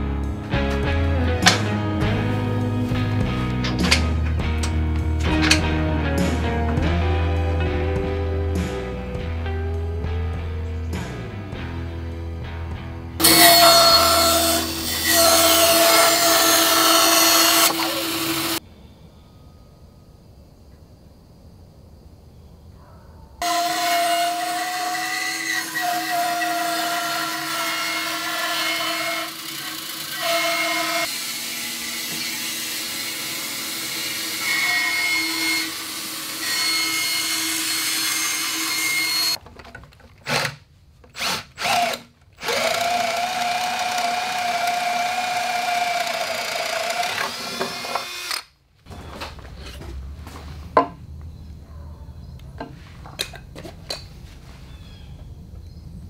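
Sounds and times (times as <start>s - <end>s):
workshop background sound: 0.6s - 6.8s, 13.2s - 18.6s, 23.4s - 51.3s, 52.4s - 55.5s
bandsaw cutting wood: 13.2s - 18.6s, 23.4s - 39.4s, 40.2s - 48.5s.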